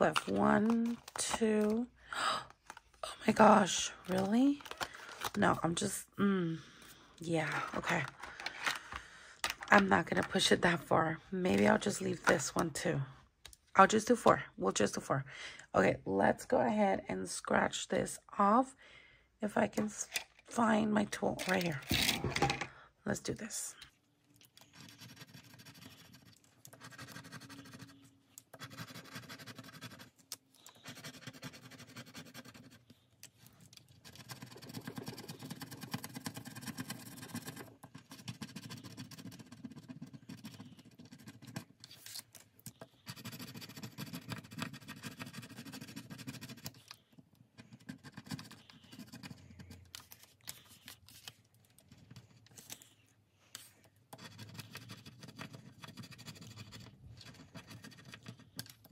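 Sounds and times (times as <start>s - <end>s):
tool scratching scratch-off cards: 24.6s - 33.1s, 33.9s - 51.3s, 53.6s - 58.9s.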